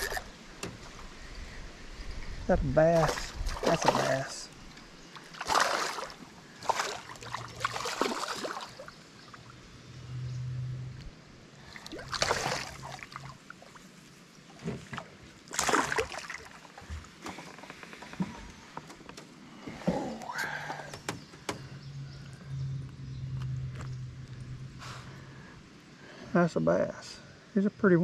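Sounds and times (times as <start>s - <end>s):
fish splashing at water surface: 5.2s - 8.9s, 11.6s - 13.8s, 15.5s - 16.7s.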